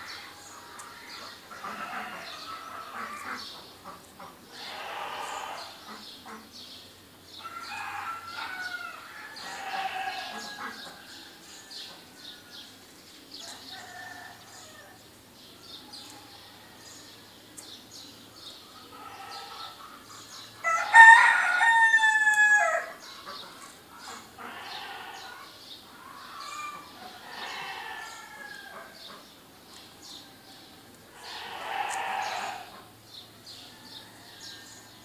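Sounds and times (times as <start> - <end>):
other fowl calling: 1.0 - 6.5, 7.5 - 11.0, 18.9 - 19.9, 20.6 - 29.2, 31.1 - 32.9
rooster crowing: 7.4 - 11.9, 13.4 - 15.0, 20.6 - 23.0, 26.4 - 29.0, 33.5 - 35.0
small birds chirping: 23.0 - 35.0.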